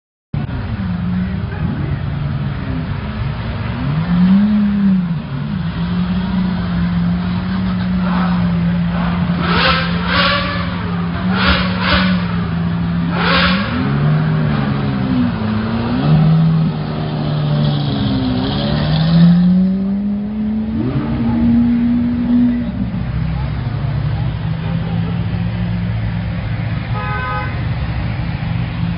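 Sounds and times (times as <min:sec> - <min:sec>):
sports car engines droning: 0:00.4 - 0:28.9
sharp engine revs: 0:08.0 - 0:14.9.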